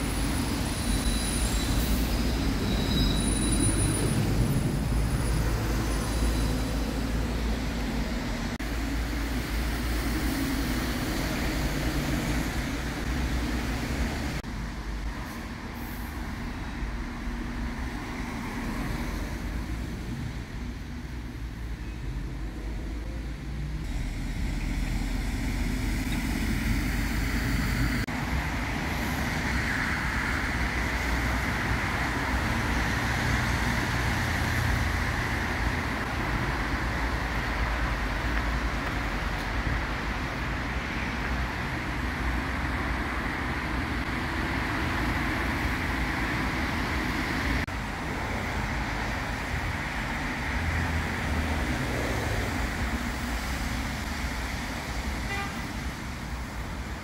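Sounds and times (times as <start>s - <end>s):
road traffic passing: 0.0s - 57.0s.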